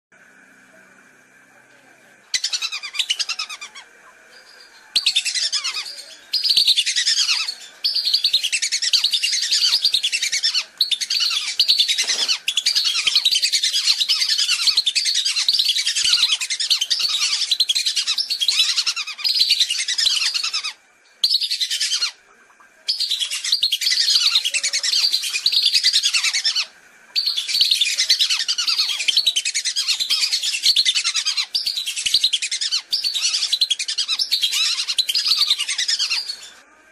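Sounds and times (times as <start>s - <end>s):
ducks whistling: 22.9s - 36.6s.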